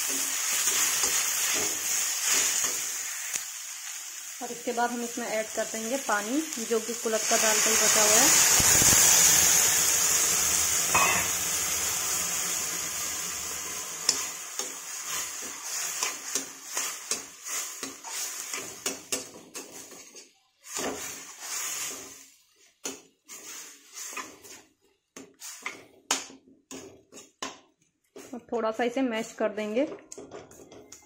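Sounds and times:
water sizzling in a hot pan: 0:00.0 - 0:26.0
metal spatula scraping a pan: 0:11.0 - 0:11.6, 0:14.1 - 0:22.4, 0:23.2 - 0:24.7.

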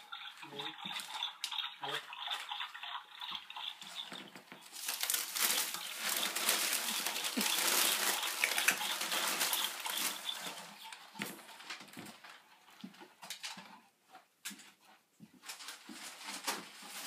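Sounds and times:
wrapping paper tearing and crinkling: 0:04.7 - 0:10.7.

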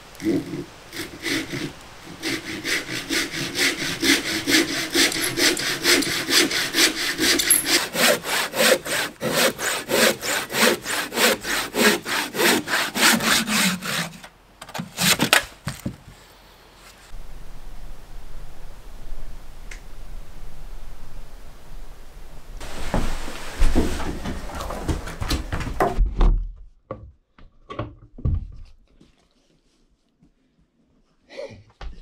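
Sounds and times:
hand saw cutting log: 0:00.2 - 0:15.5.

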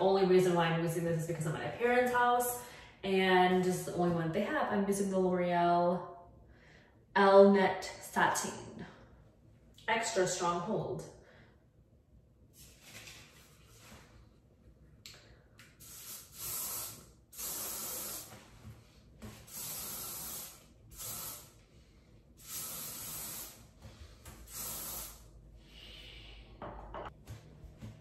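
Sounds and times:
aerosol hairspray hissing: 0:15.8 - 0:18.4, 0:19.5 - 0:21.6, 0:22.4 - 0:23.6, 0:24.5 - 0:25.2.

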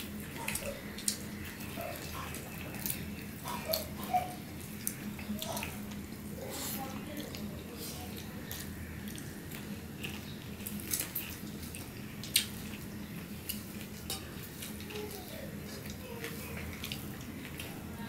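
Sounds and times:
hands mixing food on plates: 0:00.0 - 0:18.0
light clicks against plates: 0:13.4 - 0:17.8.

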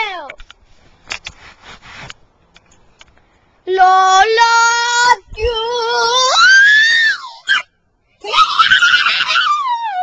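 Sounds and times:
person wailing and screaming: 0:06.2 - 0:10.0.

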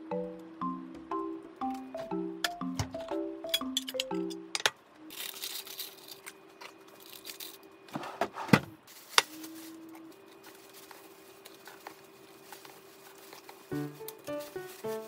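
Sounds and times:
paper liner crinkling: 0:08.9 - 0:15.0.

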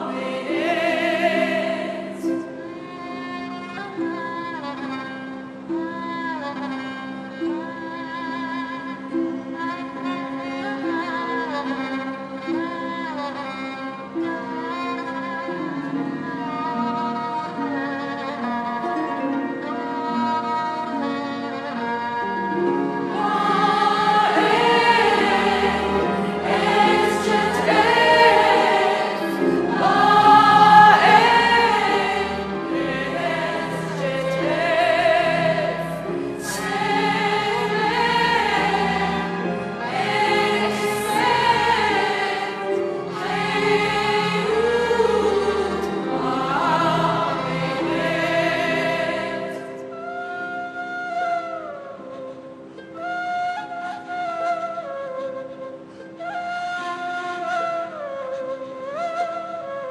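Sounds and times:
soprano singing with vibrato: 0:00.0 - 0:03.2, 0:23.1 - 0:51.6
choir singing: 0:00.0 - 0:04.2, 0:22.6 - 0:50.2
orchestra strings: 0:00.0 - 0:59.9.

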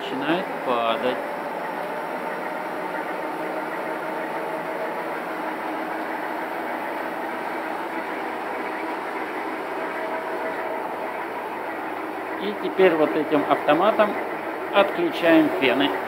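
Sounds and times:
heat guns humming: 0:00.0 - 0:16.0.

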